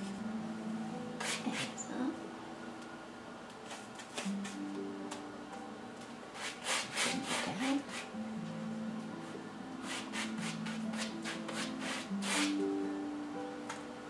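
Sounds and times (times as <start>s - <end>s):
paintbrush scraping across canvas: 6.4s - 8.1s.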